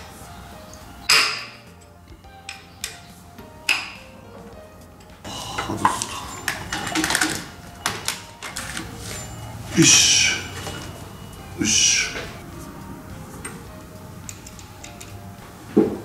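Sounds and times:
background music: 0.0 - 16.0
metal clinks of hand tools: 5.0 - 11.1.

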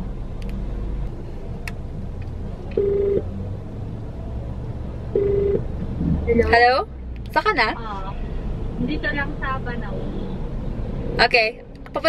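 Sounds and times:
phone ringing tone pulses: 2.8 - 3.2, 5.2 - 5.6.

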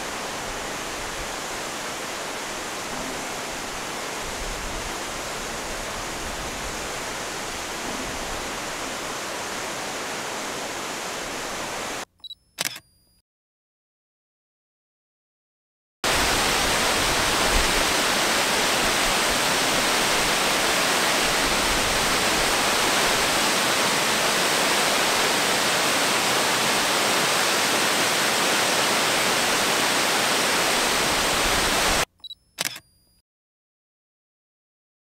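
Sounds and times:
waterfall rushing: 0.0 - 12.0, 16.0 - 32.1
short clicks: 12.1 - 13.2, 32.2 - 33.2.

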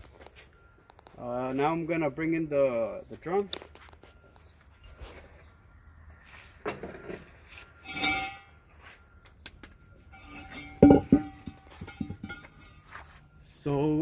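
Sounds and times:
metal parts clinking: 10.1 - 12.8.

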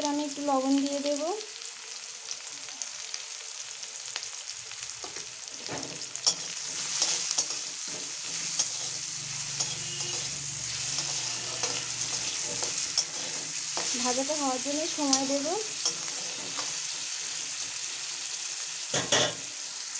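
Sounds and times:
vegetables sizzling in oil: 0.0 - 19.9
spatula scraping wok: 5.0 - 19.5.

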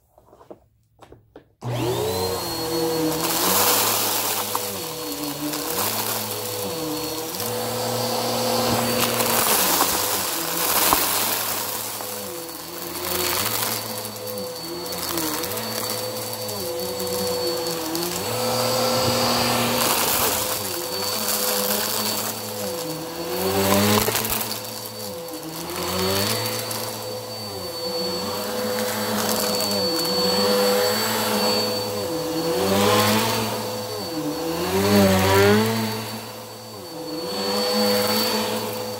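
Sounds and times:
upright vacuum cleaner motor whine: 1.6 - 38.9
crackle of beads sucked up: 8.6 - 12.2.

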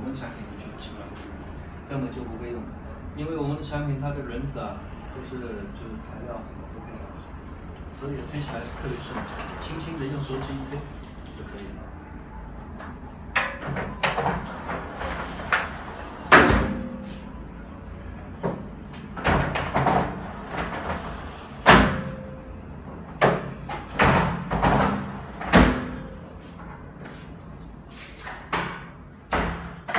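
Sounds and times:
glass panels rolling on track: 8.4 - 10.7, 13.6 - 16.6, 19.1 - 21.7.

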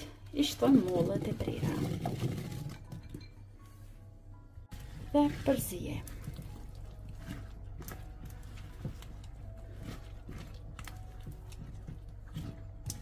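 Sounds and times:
spatula squelching in batter: 4.7 - 13.0.

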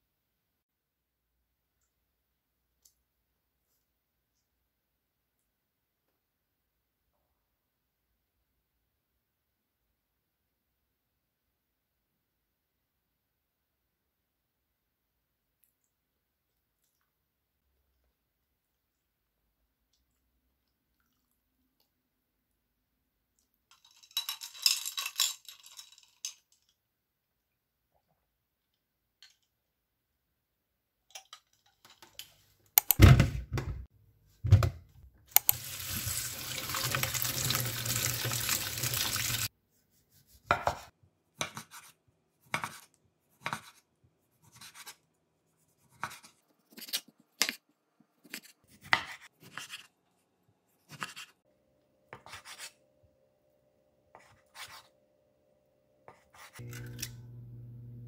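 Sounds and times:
kitchen tap running: 35.3 - 39.5.

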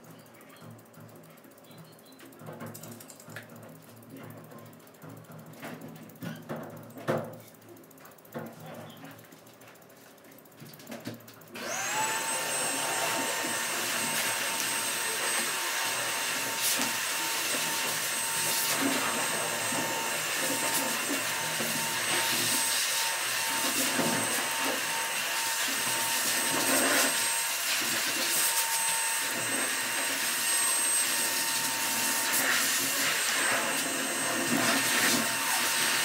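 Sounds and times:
electric blower motor whine: 11.6 - 36.0.

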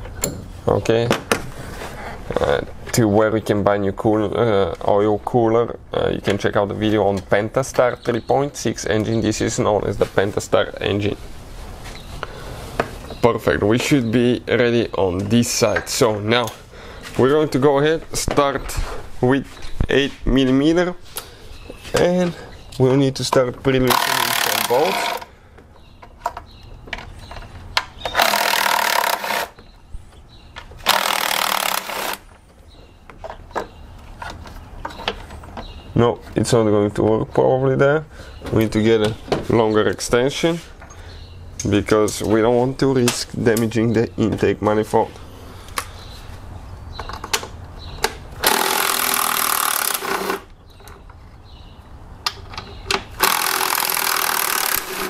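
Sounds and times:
cordless impact wrench running: 23.9 - 25.3, 28.1 - 29.5, 30.8 - 32.2, 48.4 - 50.4, 53.2 - 55.0
impact driver hammering: 48.4 - 50.4, 53.2 - 55.0.

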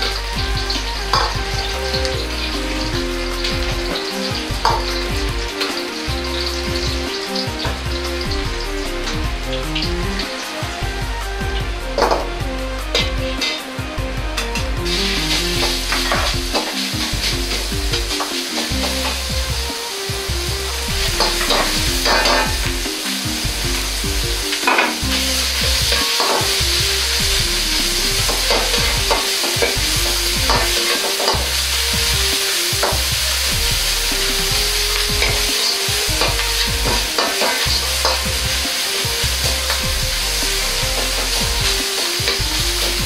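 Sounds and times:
meat sizzling in a wok: 0.0 - 11.0, 14.5 - 43.0
metal ladle scraping a wok: 20.4 - 43.0.

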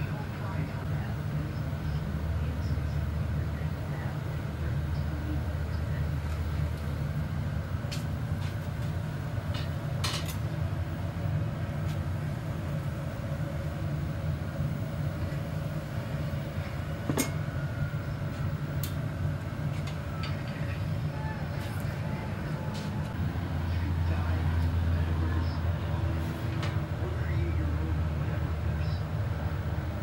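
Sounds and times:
gas burner rumble: 0.0 - 30.0.

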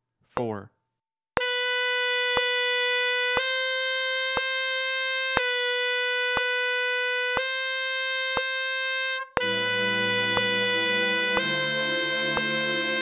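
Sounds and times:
tenor saxophone long tones: 1.4 - 13.0.

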